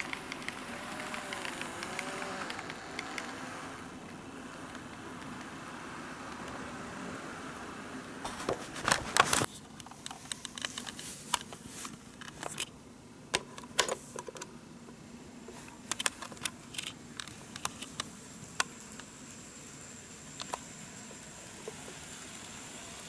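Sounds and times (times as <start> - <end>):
model train running: 0.0 - 6.3, 18.4 - 23.0.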